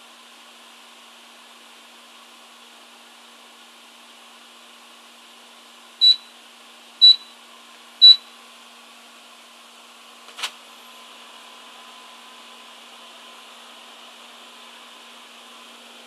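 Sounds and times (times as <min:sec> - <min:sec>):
microwave oven beeps: 0:06.0 - 0:06.4, 0:07.0 - 0:07.4, 0:08.0 - 0:08.3.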